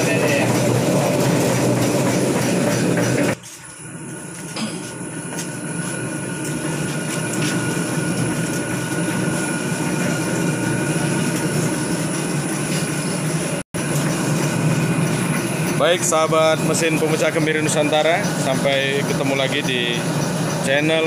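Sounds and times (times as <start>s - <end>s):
cracking machine rumbling and rattling: 0.0s - 21.0s.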